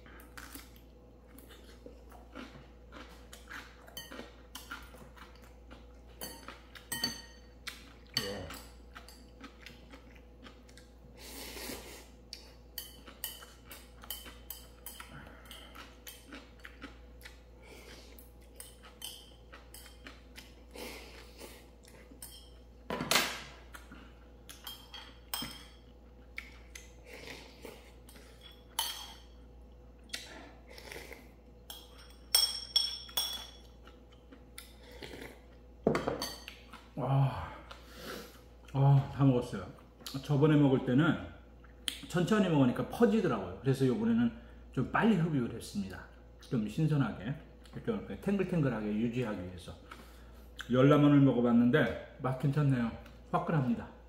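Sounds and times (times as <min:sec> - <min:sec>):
utensils clinking against bowl: 0:06.2 - 0:09.4, 0:24.6 - 0:26.0, 0:28.1 - 0:29.4, 0:31.7 - 0:33.8.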